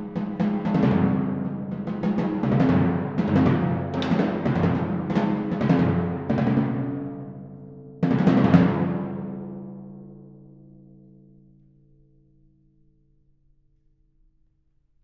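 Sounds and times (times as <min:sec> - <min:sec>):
timpani strokes: 0:00.0 - 0:07.3, 0:08.0 - 0:09.7.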